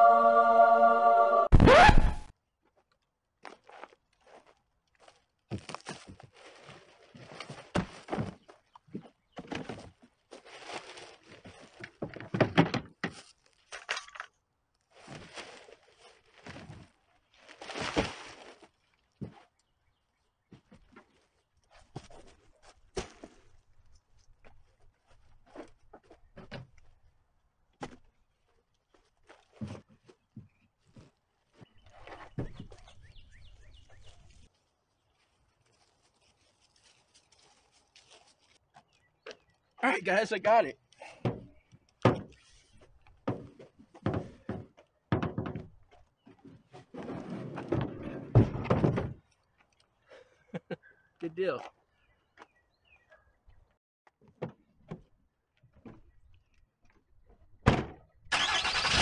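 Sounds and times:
plastic bag rustling and crinkling: 5.6 - 8.0, 10.2 - 11.9, 14.9 - 19.1, 34.2 - 38.7
small birds chirping: 31.6 - 35.4, 50.8 - 53.8.

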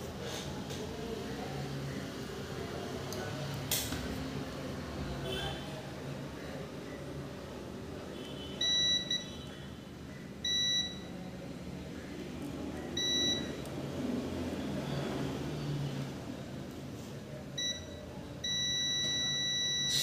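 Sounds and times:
multimeter beeping: 8.6 - 9.4, 10.4 - 11.1, 13.0 - 13.6, 17.6 - 20.0.

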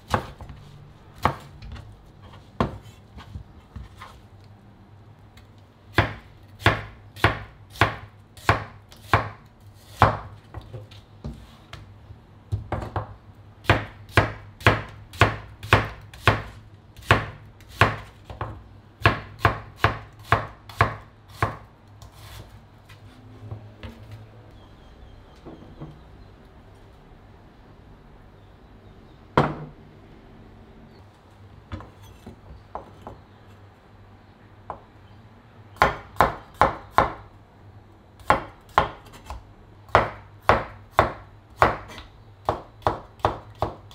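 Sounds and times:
knife chopping on wooden board: 0.0 - 0.6, 1.2 - 1.8, 2.6 - 4.1, 5.9 - 11.8, 12.5 - 22.5, 38.2 - 43.9.

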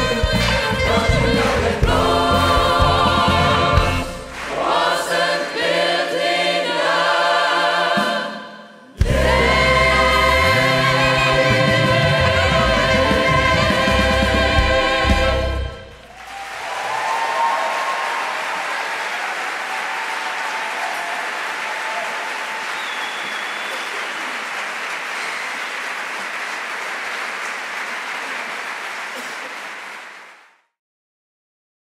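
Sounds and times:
choir final chord: 0.0 - 16.0
audience applauding: 3.3 - 5.6, 15.8 - 30.6
voices cheering: 16.0 - 26.3
high whistle: 22.4 - 24.2.

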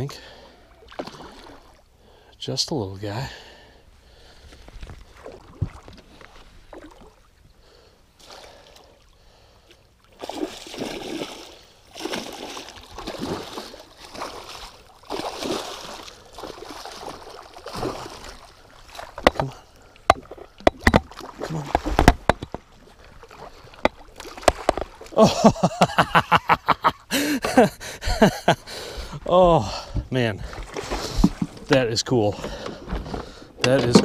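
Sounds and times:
fish thrashing water splashing: 10.1 - 25.2
sharp knocks: 19.2 - 22.6.

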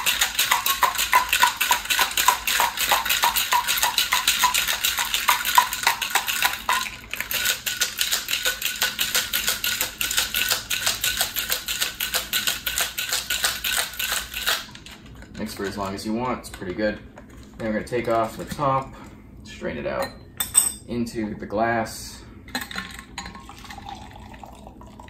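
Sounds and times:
ice rattling in cocktail shaker: 0.0 - 16.1, 22.6 - 25.0.

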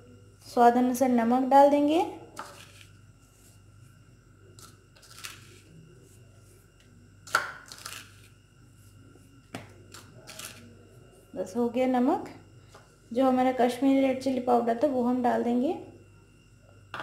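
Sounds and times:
salt scraping in bowl of flour: 2.4 - 3.7, 4.6 - 6.7.

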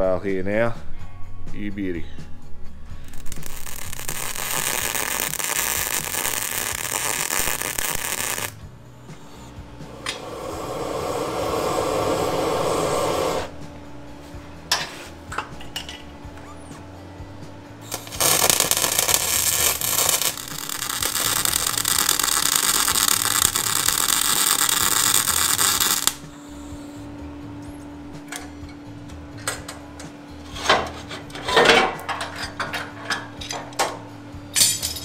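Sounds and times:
welding arc crackling: 3.1 - 8.6, 17.8 - 26.2.

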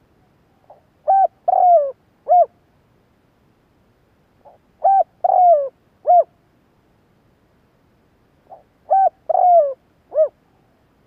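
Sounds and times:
dove cooing: 0.7 - 2.5, 4.4 - 6.3, 8.5 - 10.7.

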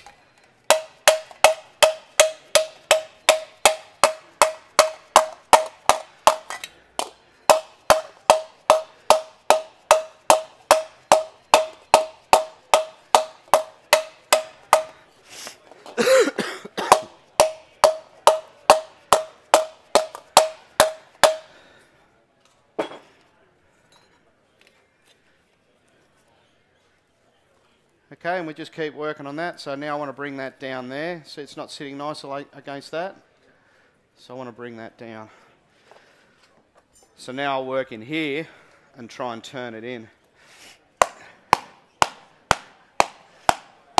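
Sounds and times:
hammer striking aluminium sheet: 0.7 - 15.0, 16.8 - 21.5, 41.0 - 43.7.

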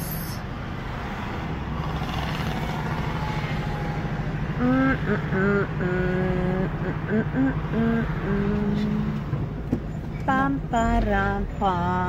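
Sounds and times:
road noise inside car: 0.0 - 12.0
car engine running: 1.7 - 12.0
person humming: 4.6 - 9.2.

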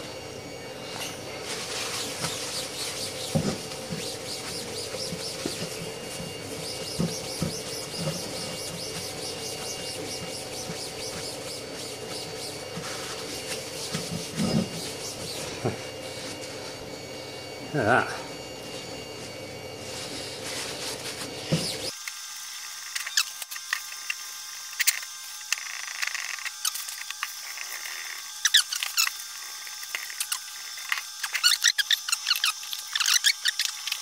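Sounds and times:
paper towel wiping metal plate: 1.4 - 16.4.

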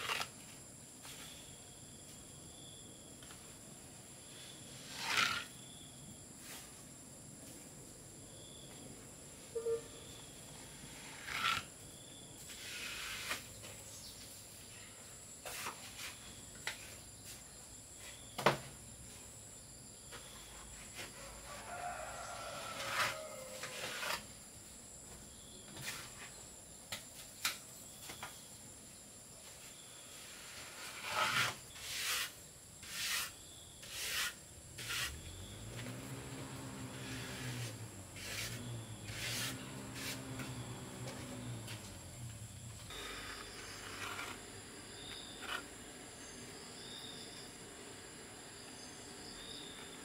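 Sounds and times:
hand tools tapping and scraping: 15.4 - 18.7, 30.4 - 46.6.

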